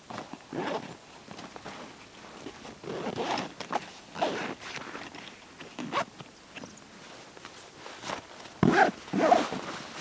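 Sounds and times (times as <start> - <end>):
zipper pulls: 0.5 - 1.0, 2.8 - 6.1, 8.6 - 9.7
fabric rustling: 7.0 - 10.0.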